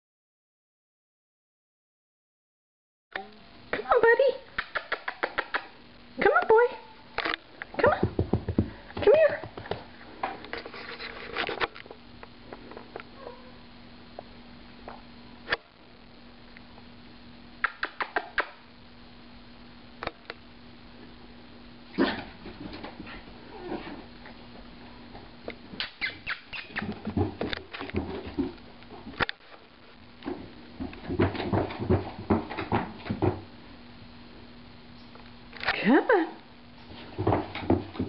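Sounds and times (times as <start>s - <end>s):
dog paws on carpeted stairs: 7.8s - 11.6s, 22.2s - 25.8s, 26.5s - 29.2s, 30.2s - 33.6s, 36.8s - 38.0s.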